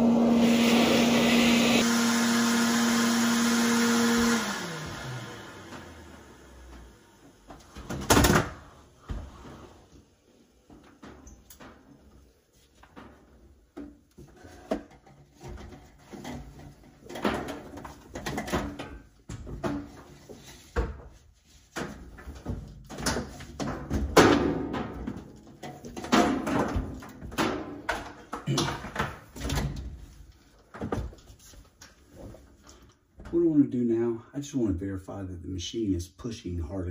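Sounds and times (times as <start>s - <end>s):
clothes dryer knocking and scraping: 12.9s - 32.4s.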